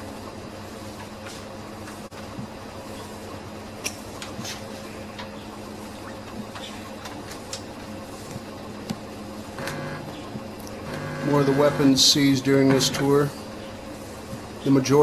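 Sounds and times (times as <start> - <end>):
low electrical hum and hiss: 7.7 - 15.0.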